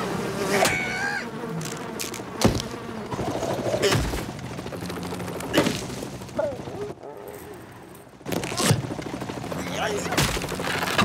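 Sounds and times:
cartoon buzzing: 0:00.0 - 0:04.1.

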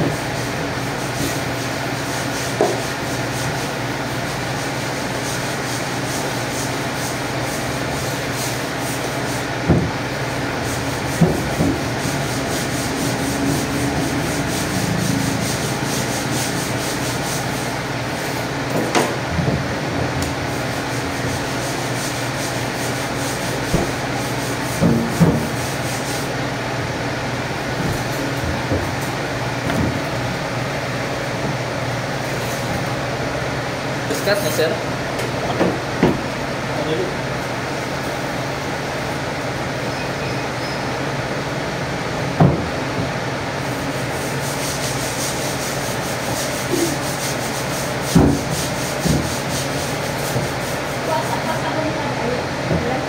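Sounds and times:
machine hum and hiss: 0:00.0 - 0:53.0.

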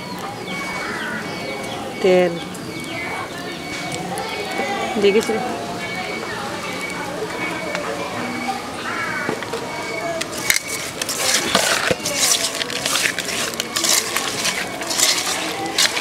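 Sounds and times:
hand squelching fish in a bowl: 0:10.2 - 0:16.0.

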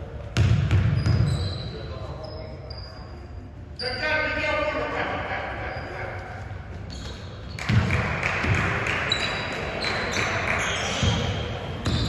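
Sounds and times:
basketball bouncing on gym floor: 0:00.4 - 0:01.4, 0:07.5 - 0:09.0, 0:10.5 - 0:12.0.

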